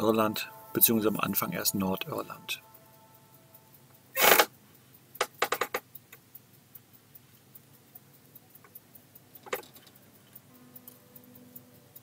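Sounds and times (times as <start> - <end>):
faint ticking: 0.0 - 12.0
sharp clicks: 0.8 - 12.0.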